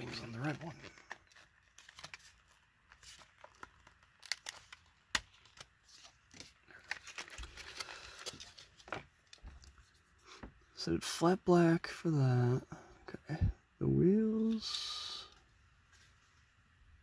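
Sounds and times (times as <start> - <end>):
plastic packaging peeled and torn: 0.0 - 9.4
plastic crinkling: 0.0 - 9.8.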